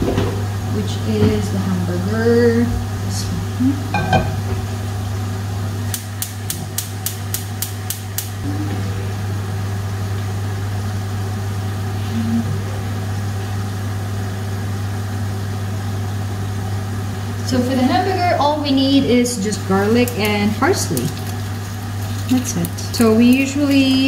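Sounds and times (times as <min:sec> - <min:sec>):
low mechanical hum: 0:00.0 - 0:24.0
gas igniter clicking: 0:05.9 - 0:08.4.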